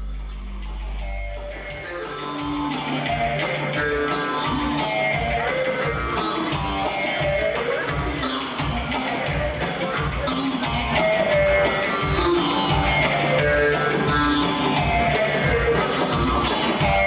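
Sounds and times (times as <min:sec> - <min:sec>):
sustained low note: 0:00.0 - 0:02.4
steady percussion beat: 0:00.0 - 0:17.0.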